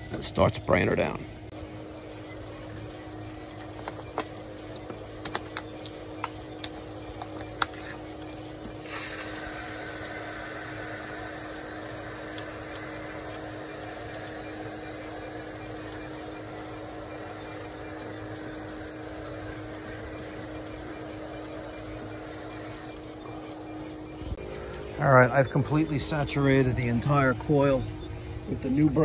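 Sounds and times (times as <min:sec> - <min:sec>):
sprayer hissing: 0:07.8 - 0:23.8.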